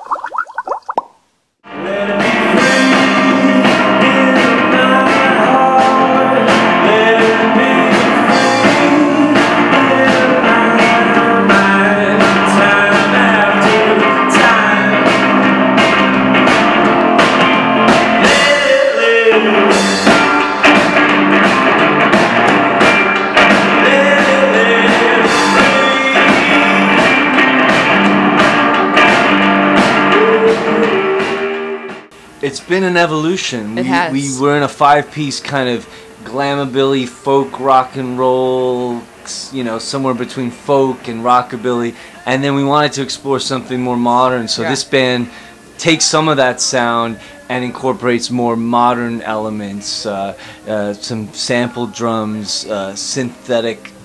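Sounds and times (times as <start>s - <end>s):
man singing: 1.7s - 15.2s, 18.2s - 20.0s, 23.8s - 27.2s, 30.0s - 31.4s, 33.7s - 53.8s
electric guitar: 1.7s - 32.4s
live rock band playing: 2.5s - 31.6s.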